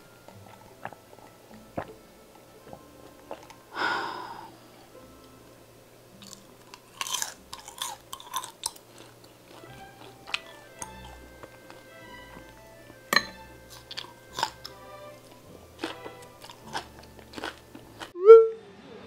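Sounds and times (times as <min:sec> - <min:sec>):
person chewing with wet smacks: 0:00.3 - 0:02.0, 0:02.6 - 0:03.6, 0:06.2 - 0:12.5, 0:13.7 - 0:18.2.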